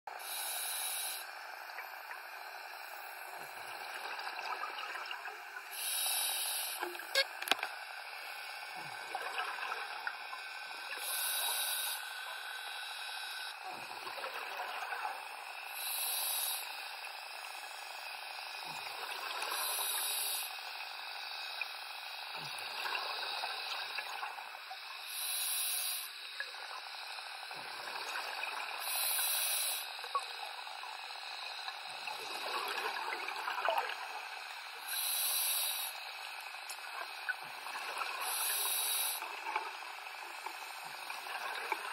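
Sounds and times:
regulator hiss: 0.2s - 1.6s, 5.6s - 8.9s, 10.0s - 13.6s, 15.2s - 18.8s, 19.5s - 28.0s, 28.6s - 32.6s, 33.4s - 41.9s.

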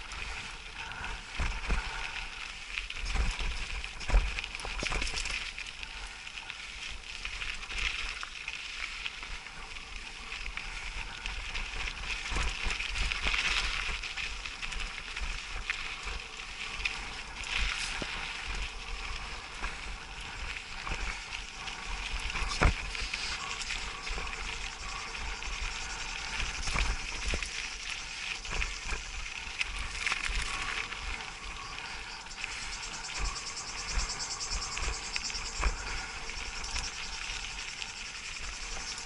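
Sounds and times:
bike tyres crunching on gravel: 0.0s - 39.0s.

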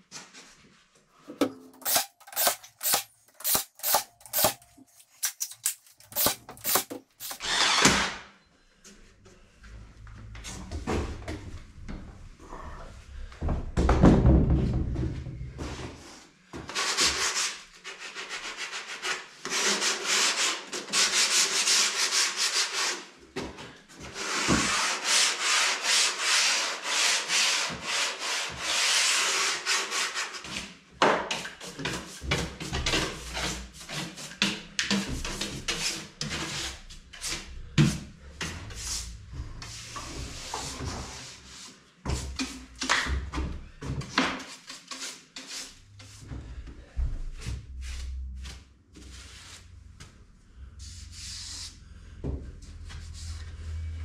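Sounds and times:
sandpaper rubbing on wood: 16.7s - 23.1s, 24.1s - 30.5s.

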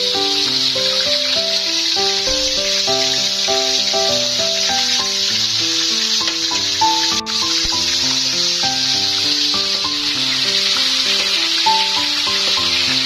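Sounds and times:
hot oil sizzling in a wok: 0.0s - 13.0s.

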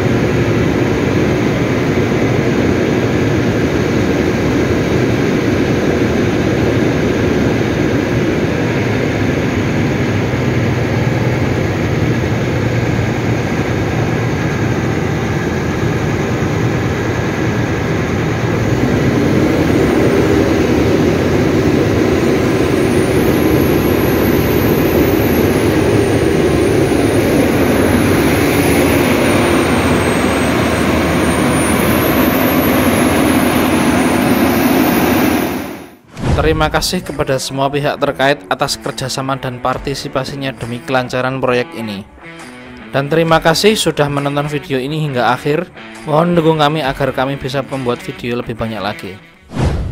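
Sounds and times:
diesel generator running: 0.0s - 37.2s.

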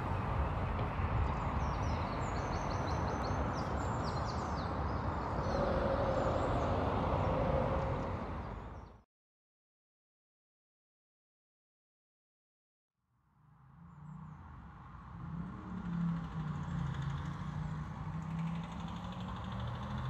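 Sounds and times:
road traffic rumble: 0.0s - 9.0s, 13.6s - 20.0s.

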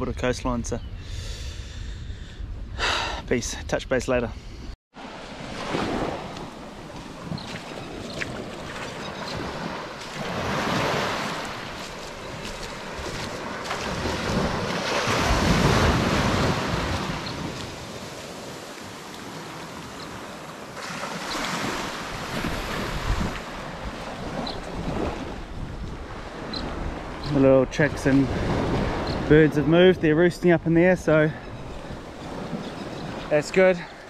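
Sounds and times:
waves breaking on beach: 5.0s - 27.4s
wind buffeting microphone: 5.6s - 19.0s, 21.4s - 33.3s.

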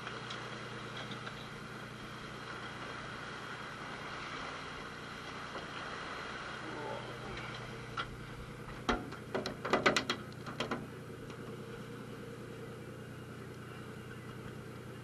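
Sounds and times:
boat engine running: 0.0s - 15.0s
sharp knocks and clicks: 8.8s - 10.9s.

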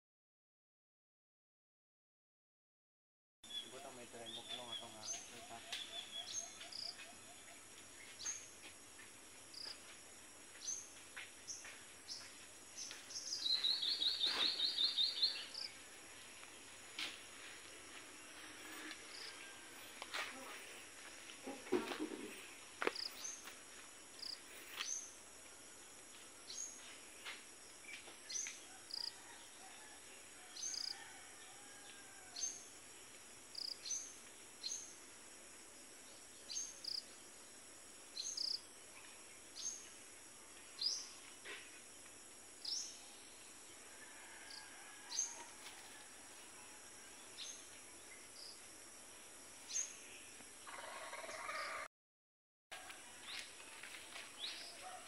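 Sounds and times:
bird chirping: 3.4s - 9.8s, 11.5s - 15.8s.

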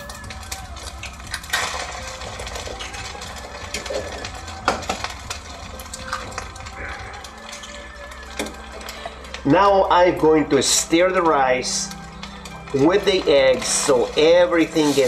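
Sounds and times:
eggs cracking on wok rim: 0.0s - 9.4s
rice sizzling in a wok: 0.0s - 10.0s, 10.6s - 15.0s.

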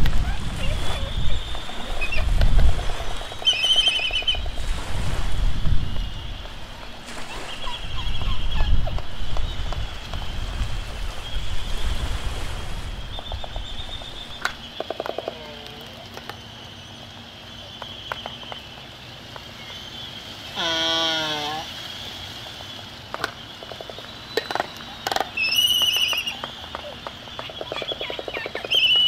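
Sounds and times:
wind and surf rumble: 0.0s - 29.0s
albatross calling: 0.4s - 4.6s, 13.2s - 16.6s, 20.5s - 21.8s, 23.1s - 29.0s
bird bill clacks: 1.4s - 4.6s, 13.1s - 29.0s.

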